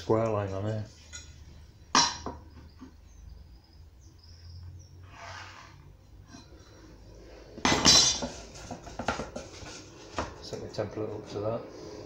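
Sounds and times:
faint high chirps: 0:01.1 - 0:05.0.

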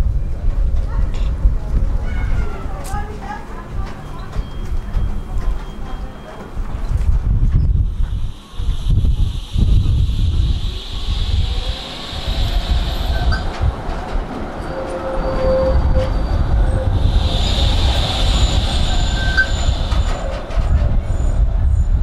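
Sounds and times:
tram rumbling on rails: 0:00.0 - 0:22.0
wheels clicking on track: 0:07.9 - 0:21.5
high-pitched wheel squeals: 0:08.8 - 0:21.8.

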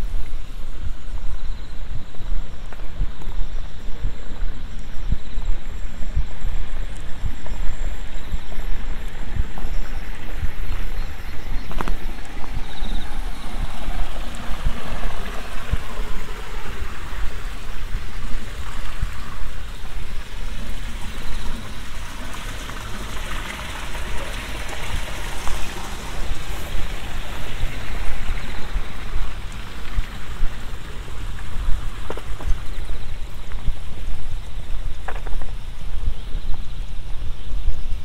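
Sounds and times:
steady rushing hiss: 0:00.0 - 0:38.0
wind buffeting microphone: 0:00.0 - 0:38.0.

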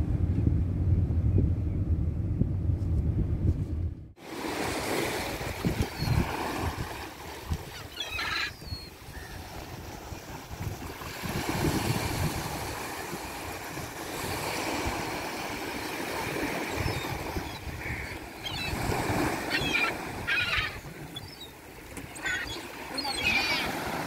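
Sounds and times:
wind rumble on microphone: 0:00.0 - 0:04.2, 0:05.3 - 0:07.6, 0:08.6 - 0:15.1
surf washing: 0:04.2 - 0:24.0
gulls calling: 0:05.8 - 0:06.4, 0:07.6 - 0:09.7, 0:15.8 - 0:24.0.

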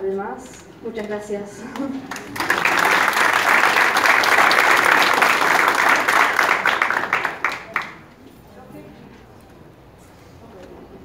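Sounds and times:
audience applauding: 0:01.8 - 0:08.2.

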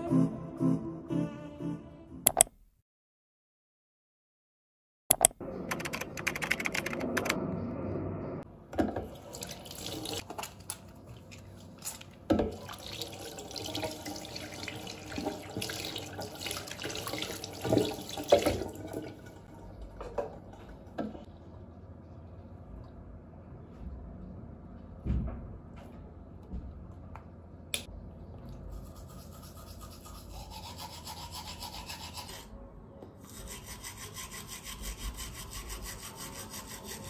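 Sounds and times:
water running from tap into sink: 0:09.0 - 0:10.2, 0:12.4 - 0:20.4.

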